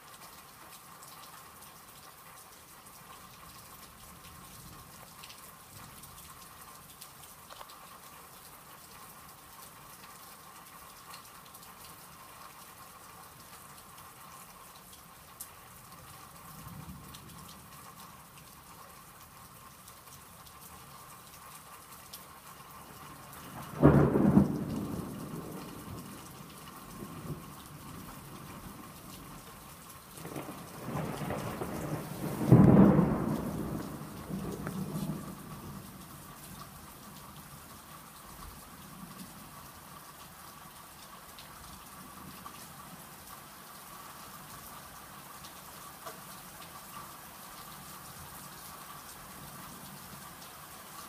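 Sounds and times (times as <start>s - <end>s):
steady rain: 0.0s - 51.0s
thunder cracking and rumbling: 23.6s - 29.1s, 30.2s - 35.9s.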